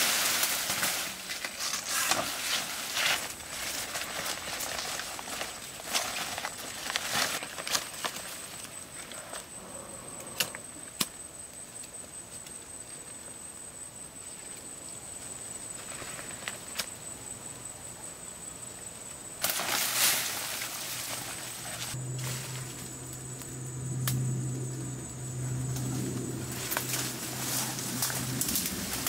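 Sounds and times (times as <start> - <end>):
leaves and dry grass rustling: 0.0 - 9.4, 14.2 - 17.1, 19.4 - 24.2, 25.0 - 29.0
sharp snaps of leaves: 19.4 - 24.3, 25.7 - 29.0.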